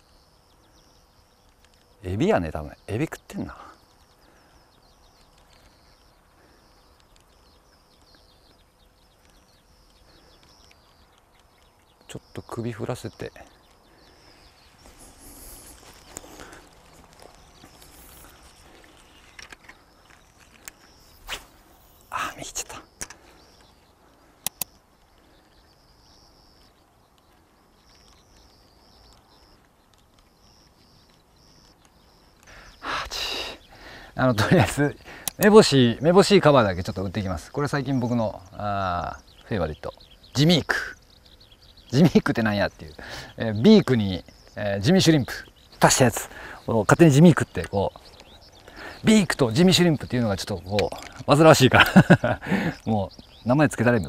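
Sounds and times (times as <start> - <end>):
faint outdoor background: 0.0 - 54.0
sharp clicks: 6.9 - 12.2, 15.3 - 25.8, 35.0 - 35.7.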